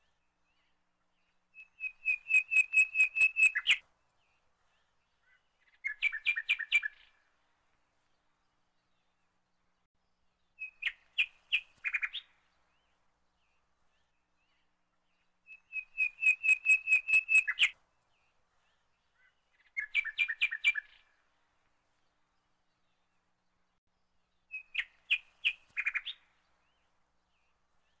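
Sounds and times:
small bird chirping: 0:01.6 - 0:03.8, 0:05.2 - 0:07.2, 0:10.5 - 0:12.4, 0:14.0 - 0:17.8, 0:18.7 - 0:21.2, 0:24.5 - 0:28.0.

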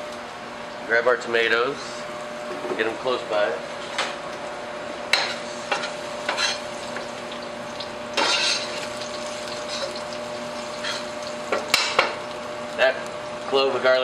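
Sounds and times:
garlic sizzling in pan: 0:05.3 - 0:13.4
oil crackling: 0:06.6 - 0:13.5.

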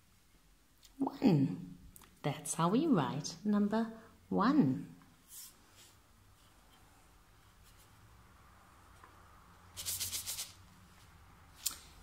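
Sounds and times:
sand shaken in wooden tray: 0:09.8 - 0:10.6.

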